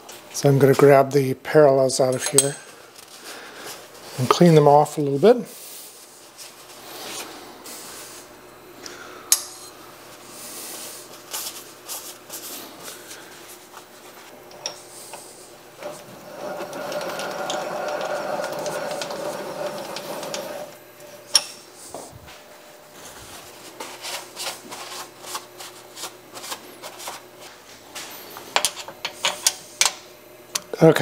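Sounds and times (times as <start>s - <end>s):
towel rubbing steel: 13.6s - 20.8s.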